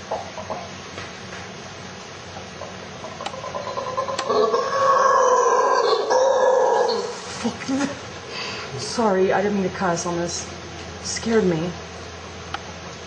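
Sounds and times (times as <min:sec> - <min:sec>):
howler monkey howling: 0:03.2 - 0:07.3.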